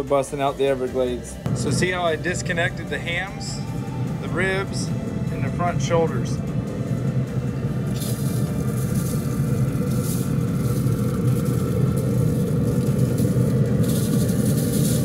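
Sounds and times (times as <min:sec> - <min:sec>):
grill low rumble: 0:00.0 - 0:15.0
seasoning shaker hiss: 0:07.7 - 0:15.0.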